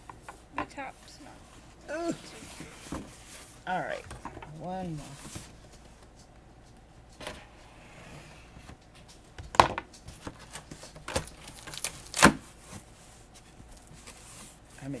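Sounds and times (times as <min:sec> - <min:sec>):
cardboard knocks and snaps: 0:09.4 - 0:12.4.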